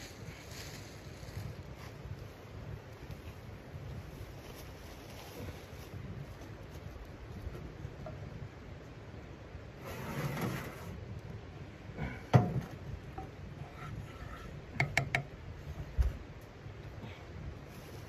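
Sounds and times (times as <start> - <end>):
wooden spatula knocking pan: 14.8 - 15.3.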